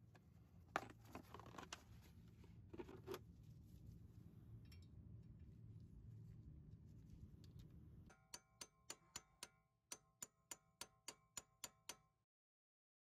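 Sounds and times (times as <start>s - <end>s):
hammer striking metal impact driver: 8.1s - 12.2s.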